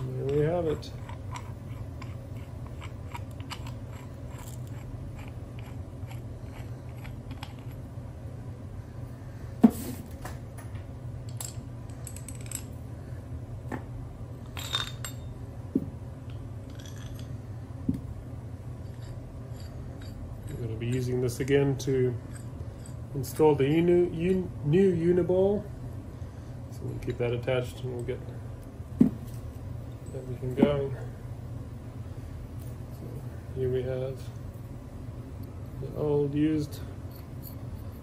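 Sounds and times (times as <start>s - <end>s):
metal parts clicking and clinking: 0.0s - 7.8s, 11.3s - 12.8s, 14.4s - 15.3s, 16.6s - 17.4s, 18.8s - 21.6s, 37.0s - 38.0s
steady low hum: 0.0s - 38.0s.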